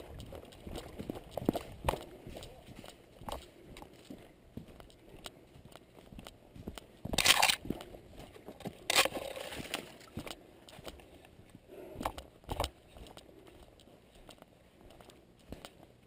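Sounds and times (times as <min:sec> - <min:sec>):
footsteps crunching leaves and twigs: 0:06.6 - 0:11.0.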